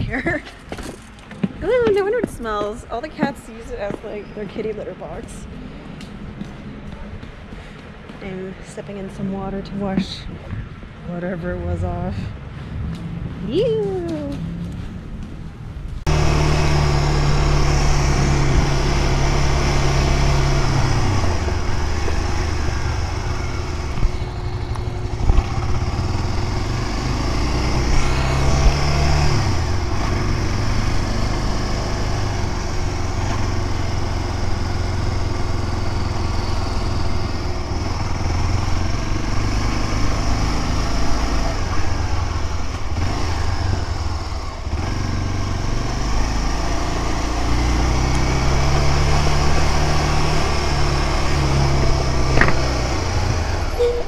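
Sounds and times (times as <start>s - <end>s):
motorcycle engine running: 14.2s - 54.0s.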